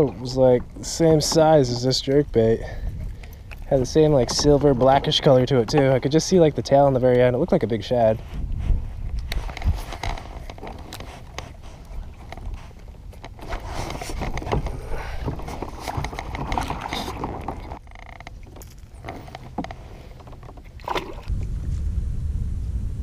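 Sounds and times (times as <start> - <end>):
gear clicks and knocks: 0.1 - 7.3, 9.1 - 20.8
steady low rumble: 0.1 - 13.4, 21.2 - 23.0.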